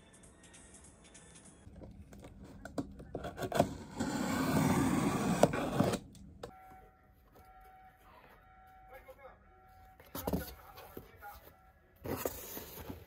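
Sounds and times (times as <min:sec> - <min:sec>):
blade scraping and tearing cardboard: 0:03.1 - 0:06.0.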